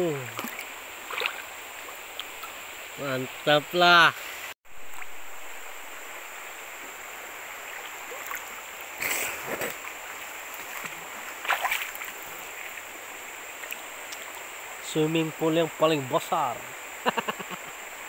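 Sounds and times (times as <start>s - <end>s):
water splashing: 0.0s - 3.4s, 4.7s - 5.5s, 6.7s - 14.5s
river rushing: 0.0s - 18.0s.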